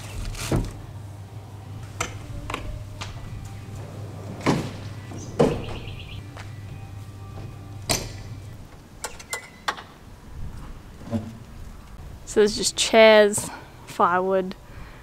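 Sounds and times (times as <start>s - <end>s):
steady low hum: 0.0s - 9.1s
knocks and thuds: 4.4s - 6.0s.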